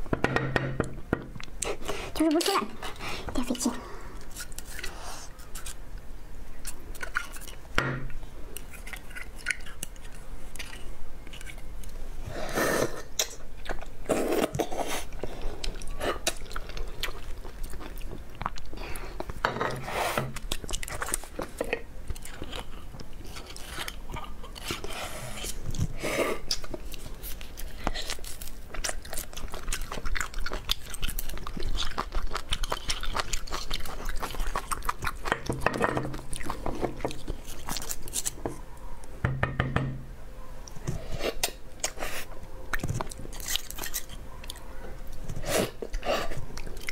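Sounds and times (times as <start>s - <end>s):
chewing and crunching food: 1.4s - 12.1s, 12.8s - 39.2s, 40.6s - 46.9s.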